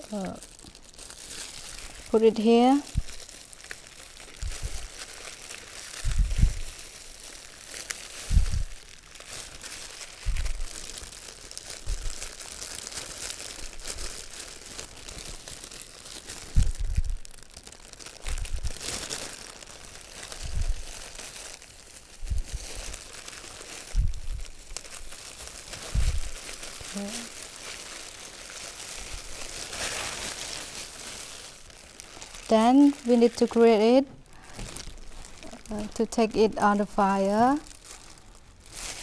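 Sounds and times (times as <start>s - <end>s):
plastic gloves and leaves crinkling: 0.0s - 39.0s.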